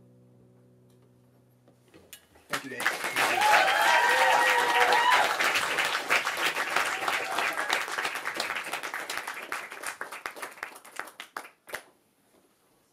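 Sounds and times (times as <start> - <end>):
audience applauding: 2.5 - 11.9.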